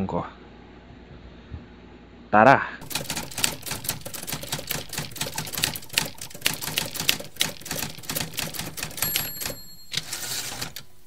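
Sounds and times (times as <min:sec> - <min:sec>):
typewriter bell ring: 0:02.8 - 0:11.0
typewriter keys clacking: 0:02.8 - 0:11.0.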